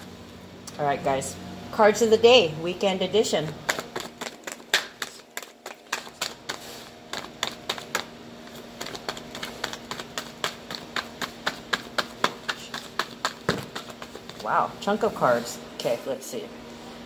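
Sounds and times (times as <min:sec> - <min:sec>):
cards being shuffled: 0:03.7 - 0:14.5.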